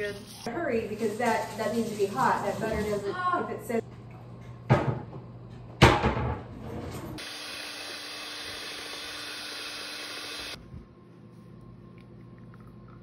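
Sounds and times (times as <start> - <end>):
electric hand mixer humming: 7.2 - 10.6.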